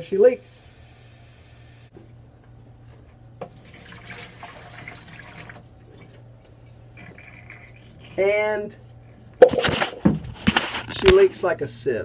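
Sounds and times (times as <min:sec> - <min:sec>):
water pouring into sink: 0:03.5 - 0:06.1, 0:06.9 - 0:08.2.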